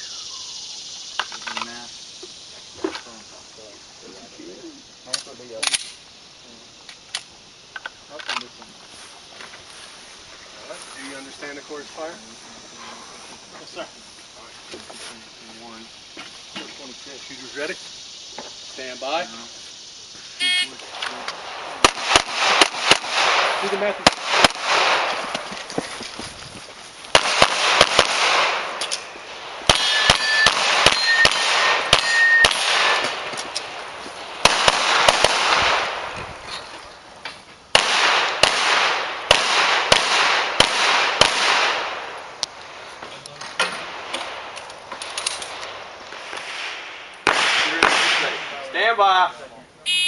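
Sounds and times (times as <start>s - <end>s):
pistol shots: 21.4s - 25.2s, 27.1s - 33.3s, 34.4s - 36.1s, 37.7s - 42.1s, 46.5s - 48.5s
steel targets ringing: 29.8s - 32.6s.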